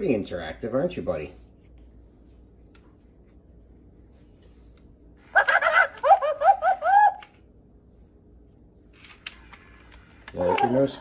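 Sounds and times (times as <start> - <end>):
toy parrot laugh-like voice: 5.2 - 7.4.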